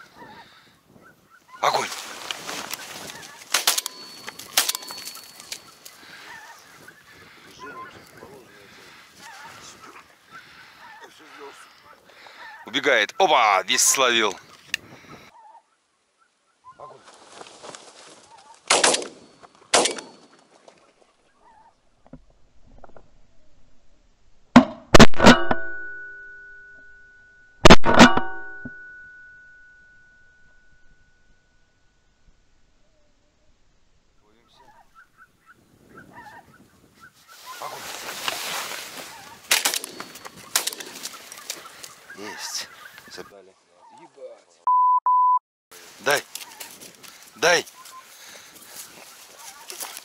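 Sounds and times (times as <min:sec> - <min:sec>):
faint geese honking: 0:00.0 - 0:17.4, 0:34.2 - 0:44.6, 0:45.8 - 0:50.0
shotgun shots: 0:18.7 - 0:20.2, 0:24.9 - 0:25.6, 0:27.6 - 0:28.4.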